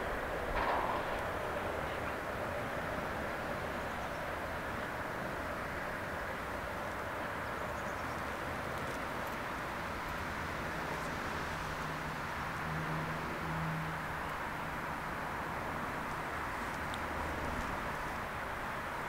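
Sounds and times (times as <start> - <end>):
diesel locomotive rumbling: 0.0 - 4.8.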